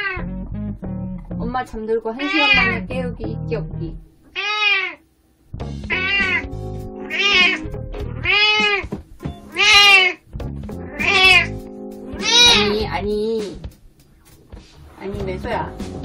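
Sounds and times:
cat meowing: 0.0s - 0.2s, 2.2s - 2.8s, 4.3s - 5.0s, 5.9s - 8.9s, 9.5s - 10.2s, 10.9s - 12.8s
quiet guitar music: 0.2s - 4.1s, 5.5s - 16.0s.

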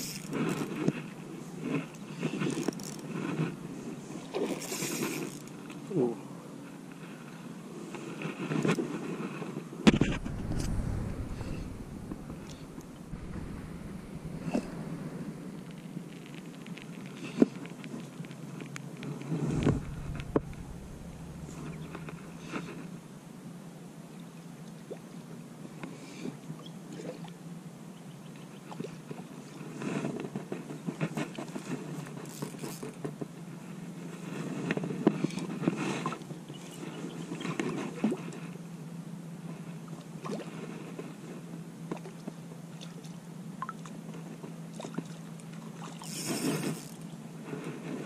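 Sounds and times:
fishing rod and reel handling: 0.0s - 1.0s, 1.7s - 3.6s, 4.3s - 5.8s, 32.2s - 33.0s, 45.8s - 47.2s
grass brushing microphone: 9.9s - 16.8s, 19.3s - 23.2s
steady low hum: 9.9s - 17.1s, 19.2s - 23.7s.

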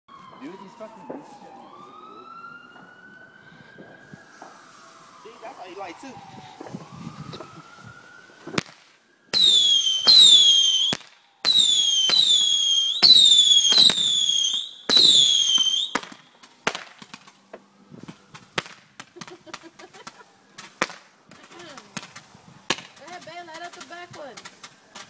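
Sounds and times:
whistling fireworks: 0.2s - 25.0s
firework pops and crackles: 8.4s - 25.0s.

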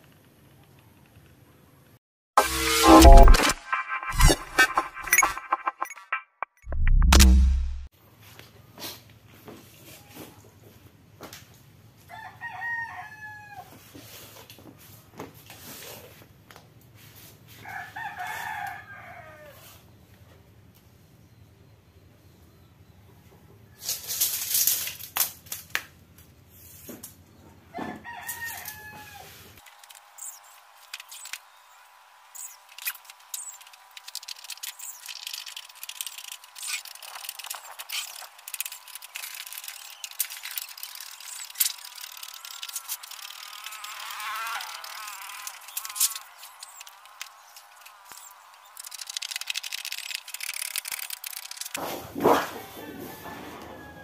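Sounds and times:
rooster crowing: 12.1s - 13.8s, 17.6s - 19.8s, 27.7s - 29.4s, 52.5s - 54.0s
metal sheet crinkling and rattling: 32.8s - 52.6s.

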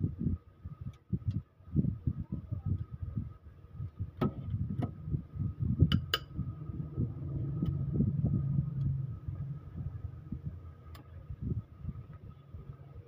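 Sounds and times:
low rumbling handling noise: 2.6s - 13.0s.

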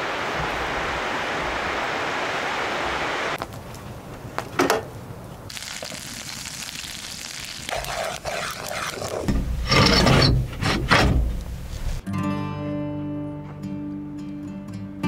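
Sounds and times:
wooden shutter scraping: 9.3s - 12.0s.

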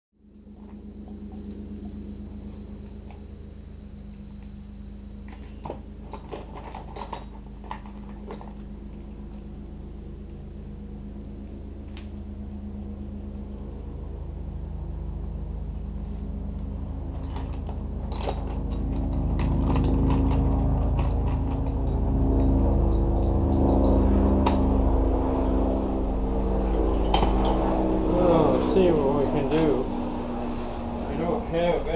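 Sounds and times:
low machine hum: 0.2s - 31.9s
metal tools clinking: 11.9s - 12.2s, 26.7s - 28.8s.

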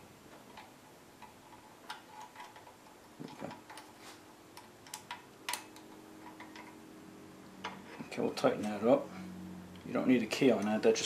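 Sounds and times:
metallic clicks of allen wrench: 4.8s - 6.8s.

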